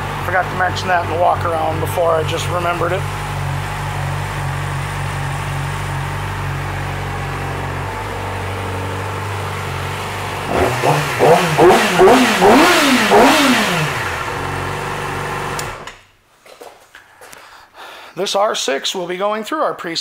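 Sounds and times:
motorcycle engine idling and revving: 0:00.0 - 0:15.9.

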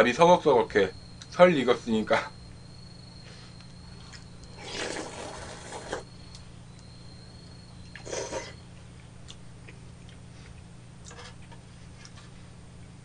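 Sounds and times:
spooning and slurping rice: 0:04.6 - 0:06.1.

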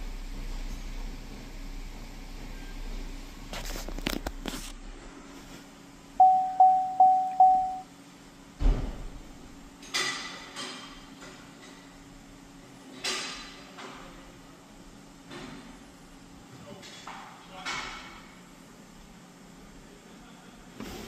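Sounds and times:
electronic beeps: 0:06.2 - 0:07.8.

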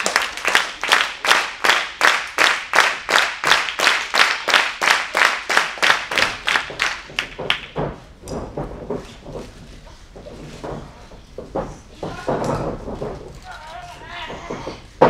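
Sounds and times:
audience clapping in unison: 0:00.0 - 0:07.8.

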